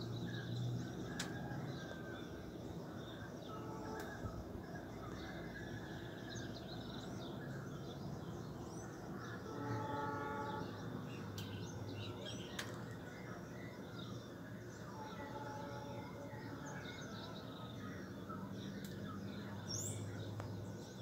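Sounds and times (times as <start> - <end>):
distant traffic hum: 0.0 - 21.0
distant horn-like tone: 3.5 - 4.4, 9.4 - 11.4, 14.8 - 16.8
small birds chirping: 6.1 - 21.0.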